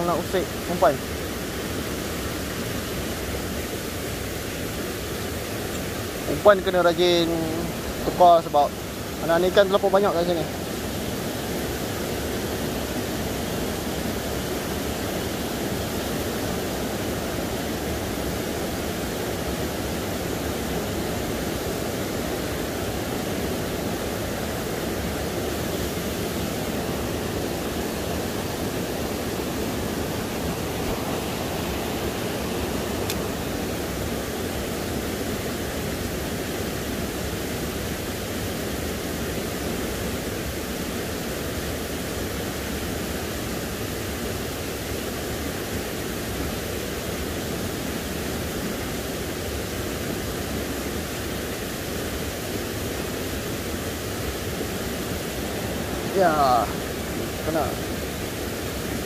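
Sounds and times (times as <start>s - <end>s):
stream rushing over rocks: 0.0s - 59.0s.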